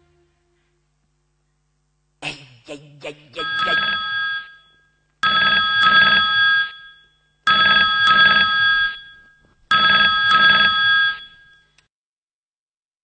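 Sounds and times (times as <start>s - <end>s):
electronic telephone ringing: 3.4s - 11.8s.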